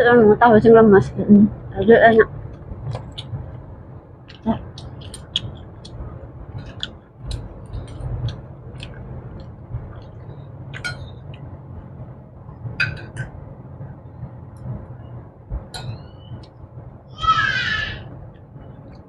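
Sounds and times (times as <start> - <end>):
low steady hum: 0.0 - 19.0
people chewing: 4.3 - 11.5.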